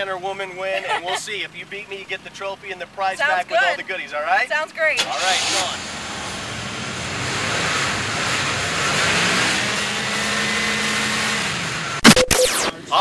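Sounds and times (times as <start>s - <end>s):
car engine drone: 5.0s - 13.0s
steady noise: 12.0s - 12.8s.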